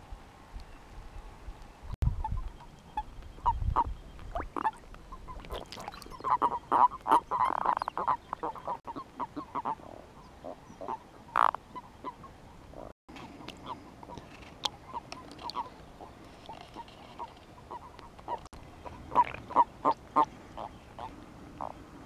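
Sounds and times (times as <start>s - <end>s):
toads croaking: 3.8s - 9.0s, 9.6s - 11.6s, 16.5s - 21.8s.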